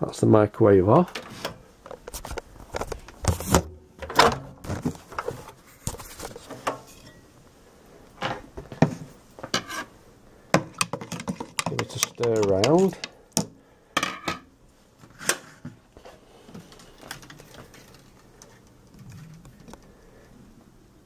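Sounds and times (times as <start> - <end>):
handling clicks and knocks: 10.6 - 13.6.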